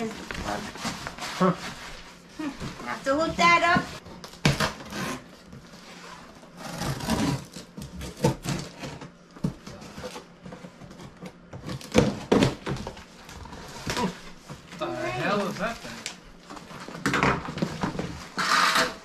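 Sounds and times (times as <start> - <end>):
packing paper tearing and crumpling: 6.1 - 8.9.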